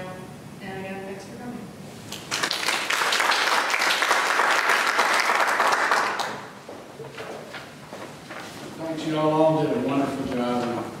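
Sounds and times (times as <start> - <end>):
audience applauding: 2.1 - 6.6.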